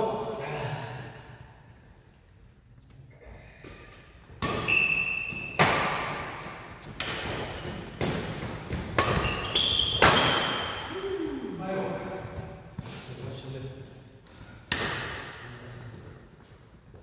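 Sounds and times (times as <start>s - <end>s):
rackets hitting shuttlecock: 3.7s - 10.9s, 14.6s - 15.4s
shoes squeaking on court floor: 7.4s - 11.0s.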